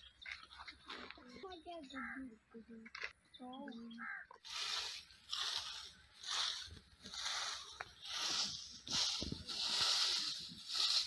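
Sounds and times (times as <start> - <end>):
twig broom sweeping dirt: 4.4 - 11.0.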